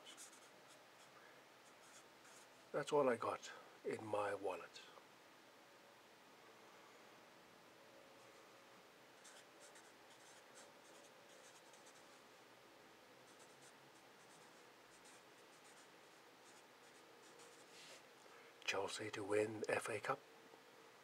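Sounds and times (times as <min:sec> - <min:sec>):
marker scratching on paper: 0:00.1 - 0:00.5, 0:09.2 - 0:12.1, 0:13.3 - 0:18.0.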